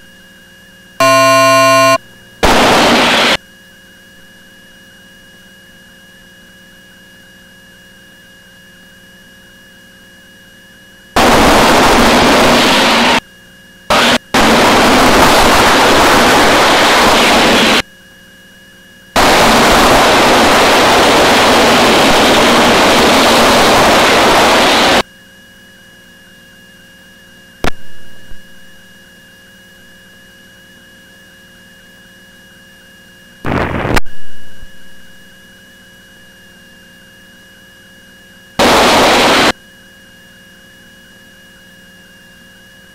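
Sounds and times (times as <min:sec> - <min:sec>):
harsh rushing static: 0:01.0 - 0:03.4, 0:11.2 - 0:13.2, 0:13.9 - 0:17.8, 0:19.2 - 0:25.0, 0:33.5 - 0:35.1, 0:38.6 - 0:39.6.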